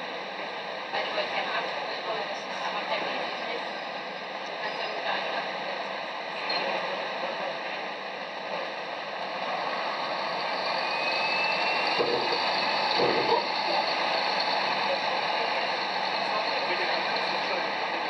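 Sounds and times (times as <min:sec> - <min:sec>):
bus engine and road noise: 0:00.0 - 0:18.0
faint rising whistle: 0:10.0 - 0:14.6.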